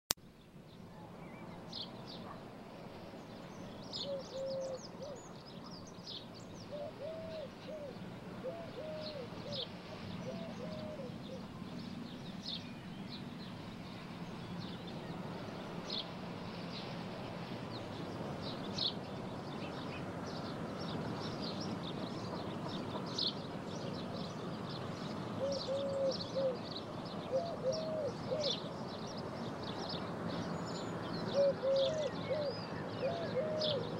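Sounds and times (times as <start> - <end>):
birds chirping: 0.4 - 33.9
pigeon cooing: 4.1 - 5.3, 6.7 - 9.6, 10.2 - 11.5, 25.4 - 26.6, 27.3 - 28.6, 31.4 - 33.9.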